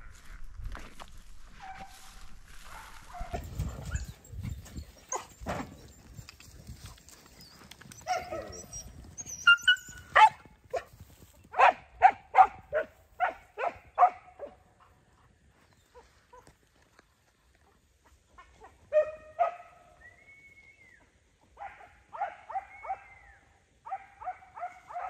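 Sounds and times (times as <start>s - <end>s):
hounds barking: 1.6s - 4.2s, 8.0s - 10.9s, 11.5s - 15.0s, 18.4s - 20.0s, 21.5s - 23.2s, 23.8s - 25.0s.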